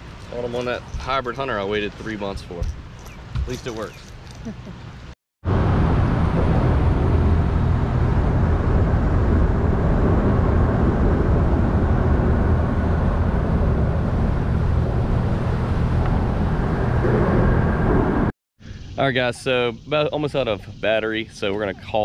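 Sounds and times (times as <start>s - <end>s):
rushing wind and water: 0.0s - 4.0s, 5.5s - 18.3s
outboard motor drone: 5.4s - 18.3s.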